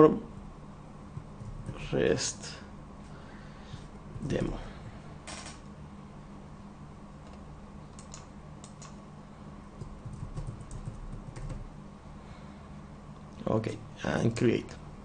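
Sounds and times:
keyboard keystroke clicks: 8.0s - 9.0s.

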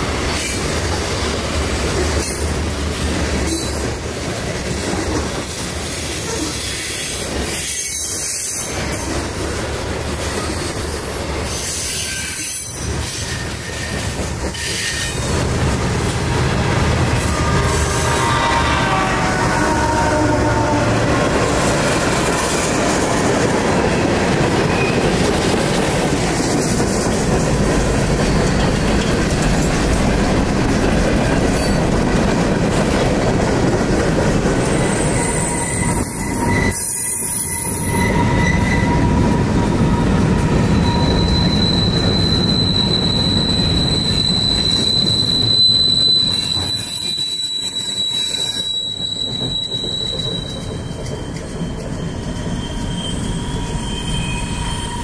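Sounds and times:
train wheels rumbling on rail: 0.0s - 55.0s
high wheel squeal: 5.5s - 15.3s, 34.6s - 55.0s.

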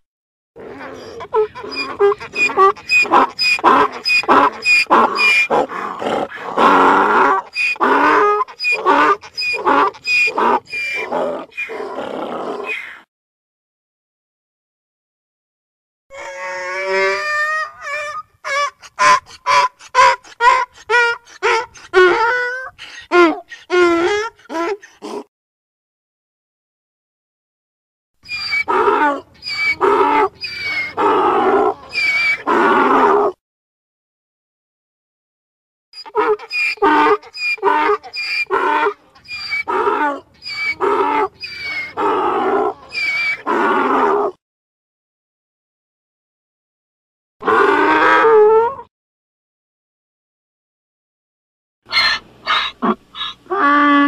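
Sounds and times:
donkey braying: 0.6s - 11.9s, 16.1s - 25.2s, 28.3s - 33.2s, 36.0s - 44.3s, 51.9s - 54.0s.

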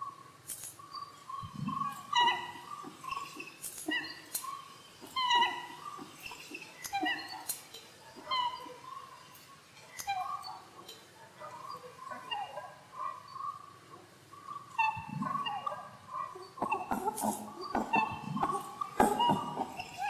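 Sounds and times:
animal squeaks and chirps: 0.9s - 7.6s, 14.7s - 20.0s
warbling call: 1.6s - 7.5s, 14.5s - 20.0s.

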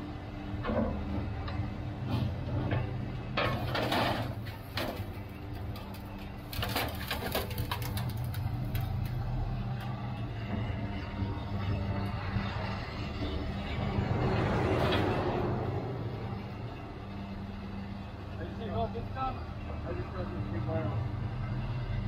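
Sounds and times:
engine humming: 0.0s - 22.0s
scrap metal clanking and scraping: 2.0s - 9.2s.

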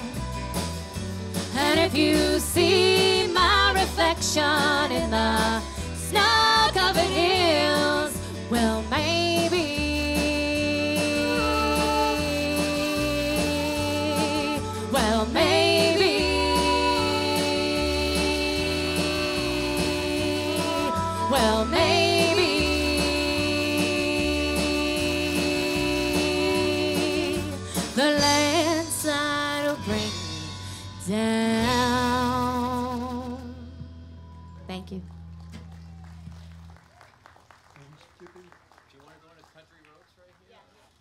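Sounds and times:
guitars: 0.0s - 36.6s
country band playing: 0.0s - 36.7s
bass guitar: 0.0s - 37.0s
woman singing with vibrato: 1.5s - 33.8s.

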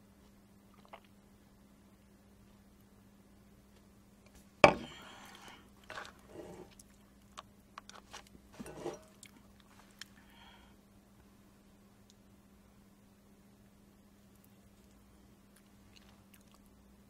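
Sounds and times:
chewing noodles: 0.7s - 1.1s, 14.8s - 16.7s.

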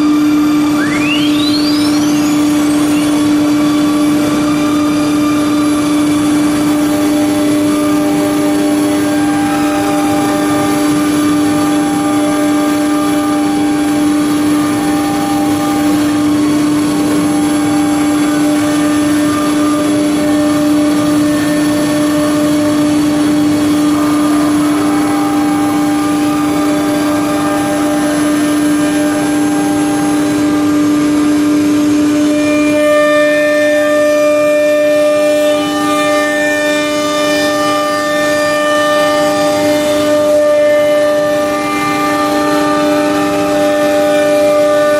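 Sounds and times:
router spindle whine: 0.0s - 44.9s
wood cutting noise: 0.0s - 44.9s
higher machine tone: 0.4s - 5.8s.

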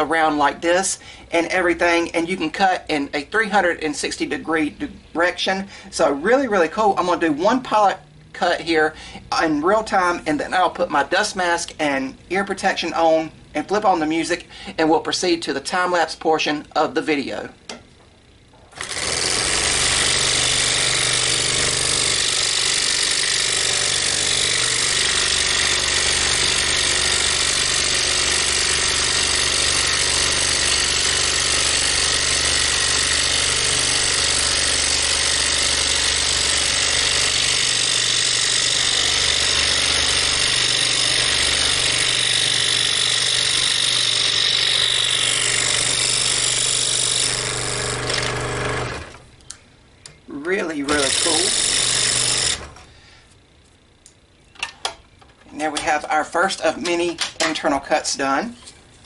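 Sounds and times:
scroll saw cutting wood: 18.8s - 49.2s, 50.7s - 52.8s.

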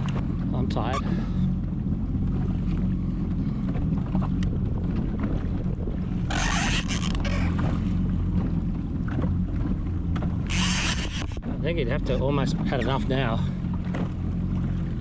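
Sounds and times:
jet ski engine idling: 0.0s - 15.0s
wind noise on microphone: 4.2s - 7.8s, 10.4s - 11.8s.

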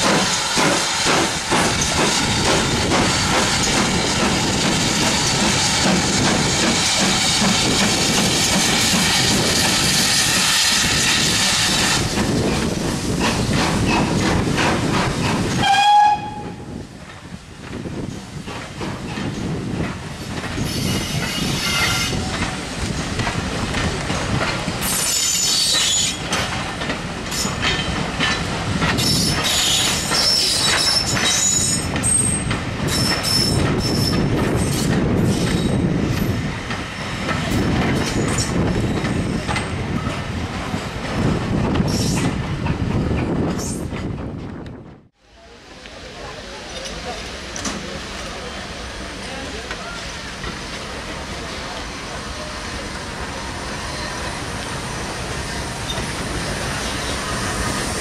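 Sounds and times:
steam locomotive working: 0.0s - 58.0s
wheels clicking over rail joints: 25.7s - 39.7s.

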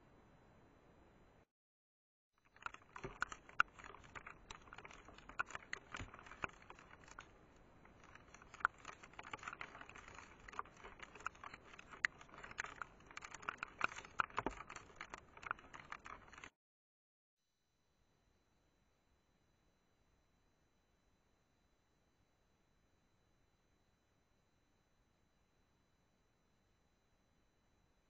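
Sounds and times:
faint patter: 2.5s - 16.5s
precipitation ticking on plastic: 2.5s - 16.5s.

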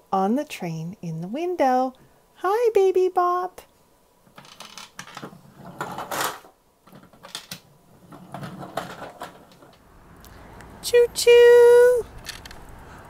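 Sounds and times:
plastic toy clicks and rattles: 12.2s - 12.6s.

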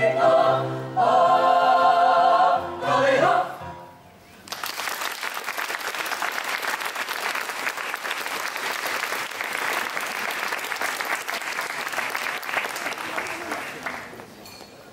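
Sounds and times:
audience applause: 4.5s - 14.2s.

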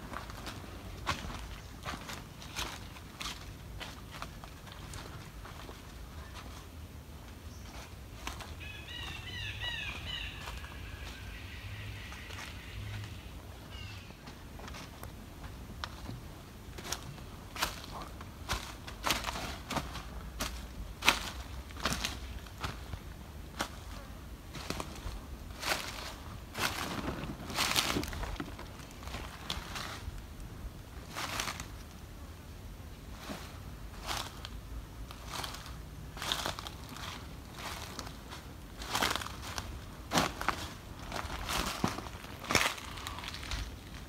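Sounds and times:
footsteps crunching dry leaves: 0.0s - 32.0s, 33.0s - 44.0s.

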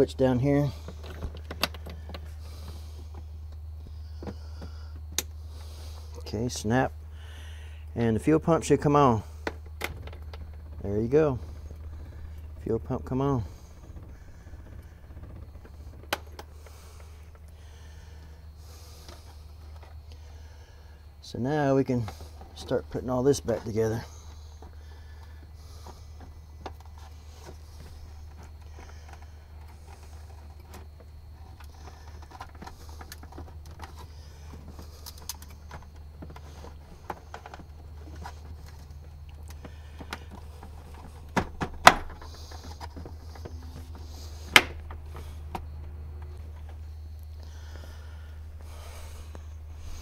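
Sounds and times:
steady low hum: 0.0s - 50.0s
plastic panel clicks and rattles: 1.0s - 2.3s, 31.5s - 45.7s.

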